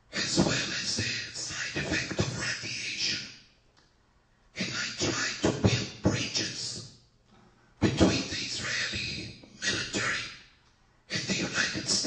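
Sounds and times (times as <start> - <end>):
man speaking: 0.1 - 3.3, 4.6 - 6.8, 7.8 - 10.4, 11.1 - 12.0.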